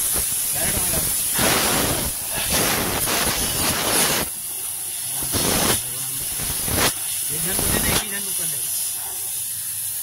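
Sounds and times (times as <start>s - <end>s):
air hissing through pipes: 0.0s - 10.0s.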